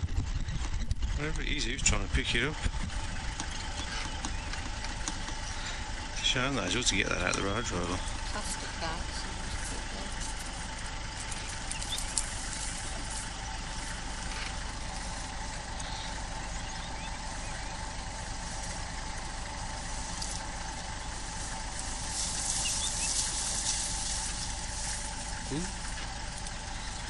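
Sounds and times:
vehicle engine humming: 0.0s - 27.0s.

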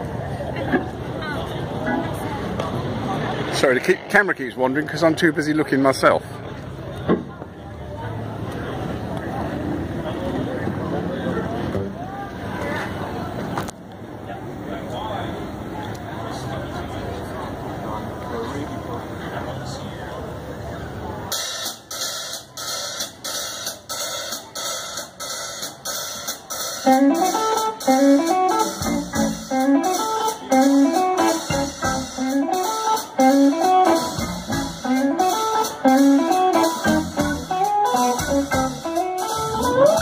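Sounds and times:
drum beat: 23.8s - 40.0s
electric guitar riff: 26.8s - 40.0s.

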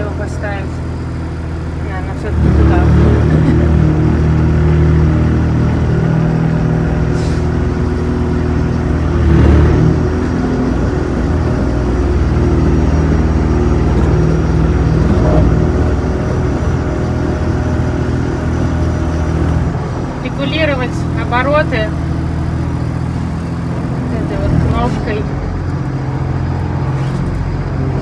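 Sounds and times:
tracked machine engine running: 0.0s - 28.0s.

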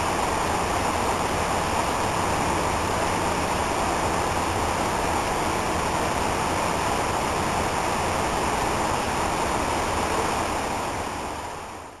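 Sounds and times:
stream running over rocks: 0.0s - 12.0s.

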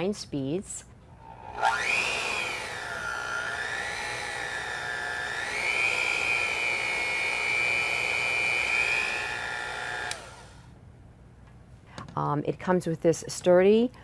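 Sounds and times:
hand mixer motor whine: 1.2s - 10.6s.

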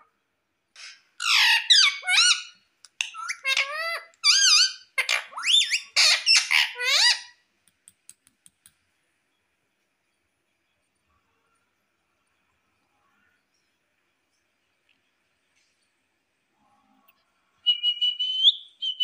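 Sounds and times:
parrot shrill calls: 0.8s - 7.4s
faint clicks: 7.6s - 8.8s.

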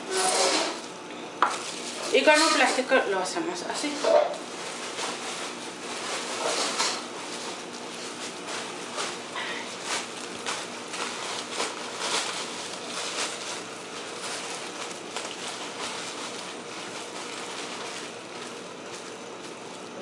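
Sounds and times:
plastic sheet crinkling: 1.5s - 20.0s.

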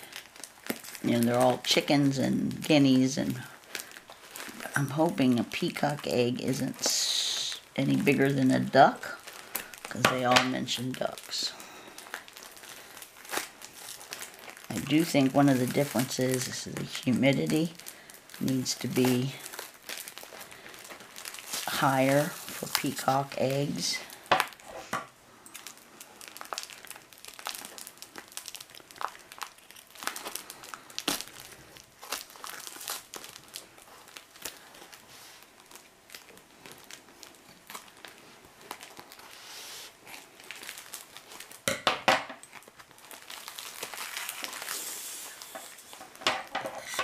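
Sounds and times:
foam packing wrap crinkling: 0.0s - 47.0s.

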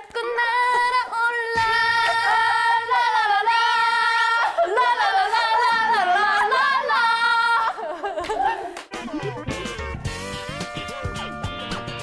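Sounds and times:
young women singing: 0.0s - 8.6s.

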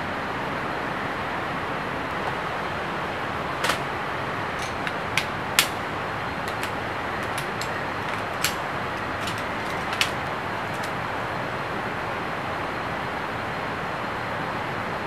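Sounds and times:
camp chair poles clicking: 3.5s - 11.0s.

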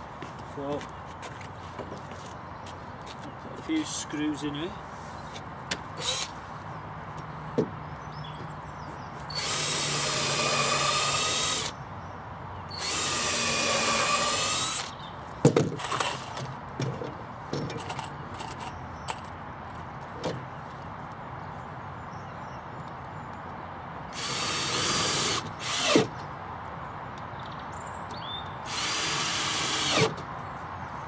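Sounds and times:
cordless drill into wood: 6.0s - 6.3s, 9.3s - 11.8s, 12.7s - 15.0s, 24.1s - 26.1s, 28.6s - 30.2s.

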